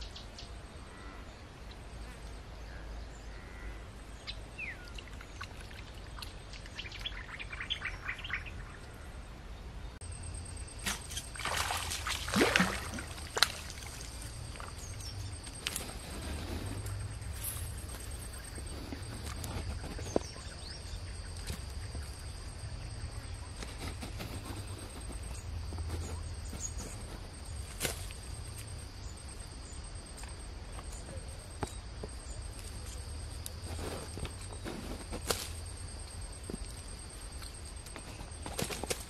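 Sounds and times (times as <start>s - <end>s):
birds chirping: 0.0s - 11.4s, 12.5s - 27.7s
fish splashing in water: 10.8s - 14.8s.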